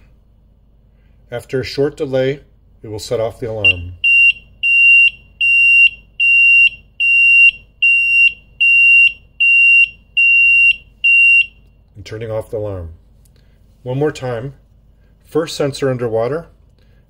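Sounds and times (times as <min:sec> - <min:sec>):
high-pitched electronic alarm beeps: 0:03.6 - 0:11.6.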